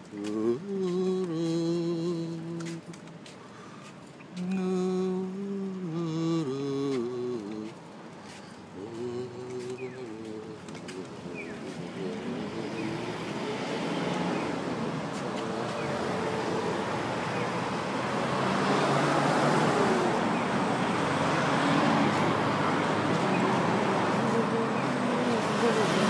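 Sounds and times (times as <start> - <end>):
traffic passing: 0.0 - 26.0.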